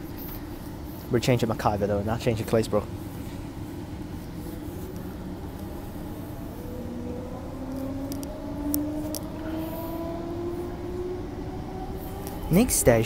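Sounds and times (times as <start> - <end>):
train motor whine rising: 4.4 - 13.0.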